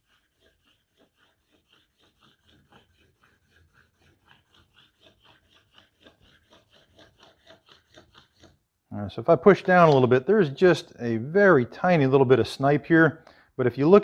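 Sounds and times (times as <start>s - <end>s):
marker scraping on wood: 0.0s - 8.6s, 9.2s - 10.9s.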